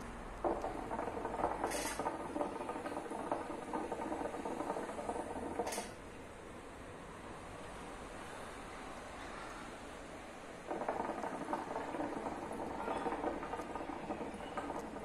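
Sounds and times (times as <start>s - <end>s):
water bubbling in hookah: 0.4s - 6.0s, 10.6s - 15.0s.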